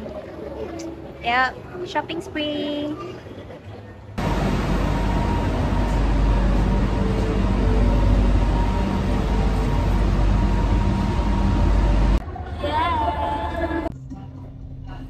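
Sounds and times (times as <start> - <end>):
train low rumble: 3.7 - 12.2.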